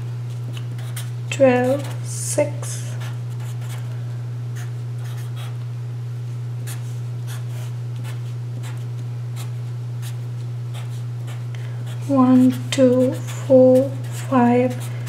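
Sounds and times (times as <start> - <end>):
steady low hum: 0.0 - 15.0
felt-tip marker on paper: 12.0 - 14.9.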